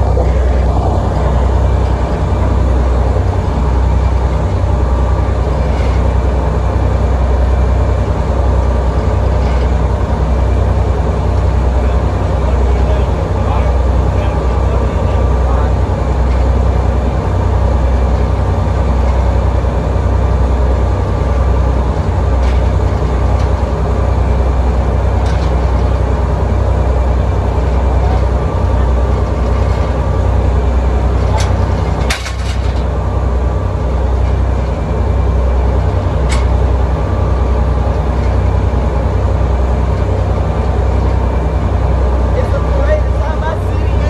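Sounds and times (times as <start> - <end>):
diesel engines droning: 0.0 - 44.0.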